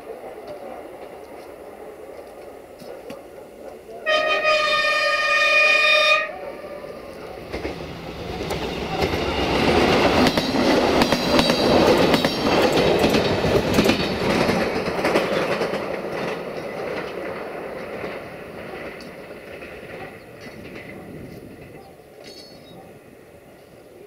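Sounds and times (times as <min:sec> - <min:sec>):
train engine and wheels running: 0:00.0 - 0:24.0
train horn: 0:04.0 - 0:07.0
wheels clicking over rail joints: 0:07.4 - 0:22.8.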